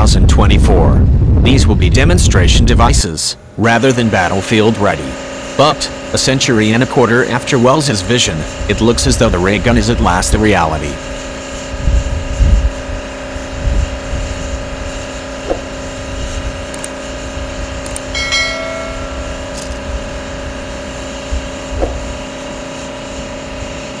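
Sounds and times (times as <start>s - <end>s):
truck idling with cooling fans: 0.0s - 24.0s
click and bell chime effect: 18.1s - 19.3s.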